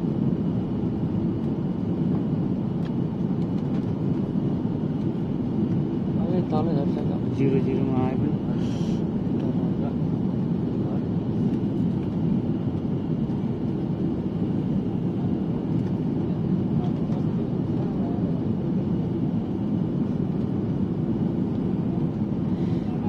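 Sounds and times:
airliner cabin engine drone: 0.0 - 23.0
airflow noise: 8.3 - 9.8.

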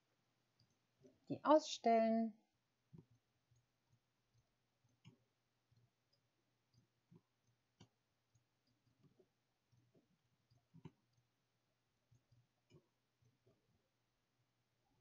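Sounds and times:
computer mouse clicks: 2.9 - 11.3.

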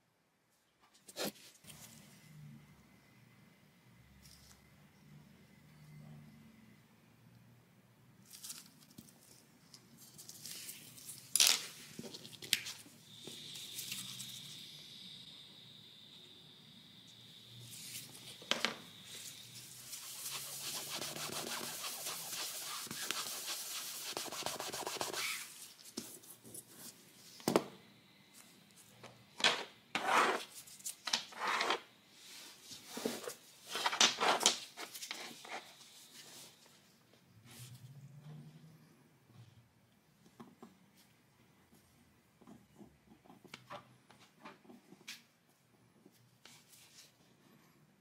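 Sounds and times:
rubbing on a laminate floor: 19.8 - 27.0.

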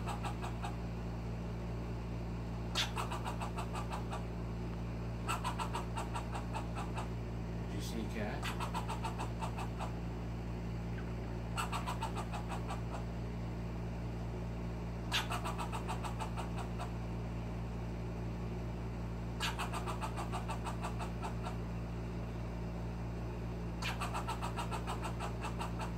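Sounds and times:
steady low hum: 0.0 - 25.9
squirrel clicking alarm barks: 2.8 - 4.2, 5.3 - 7.1, 8.4 - 10.0, 11.6 - 13.0, 15.1 - 16.9, 19.4 - 21.6, 23.8 - 25.9.

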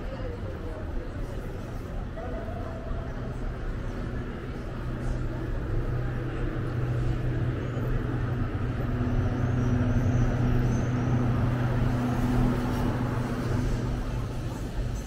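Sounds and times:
vehicle engine humming: 3.6 - 15.0.

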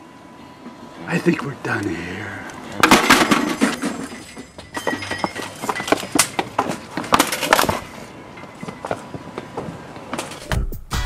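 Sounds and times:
metal gate rattling: 2.8 - 8.7
hurried footsteps on pavement: 4.3 - 10.4.

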